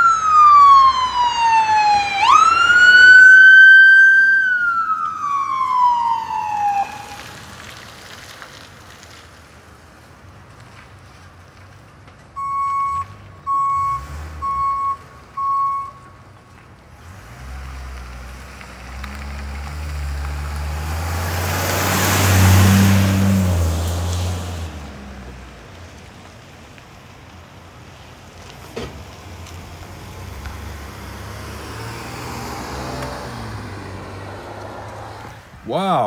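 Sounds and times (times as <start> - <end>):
reversing alarm beeps: 12.4 - 16.0
vehicle driving past: 17.0 - 26.1, 29.0 - 35.5.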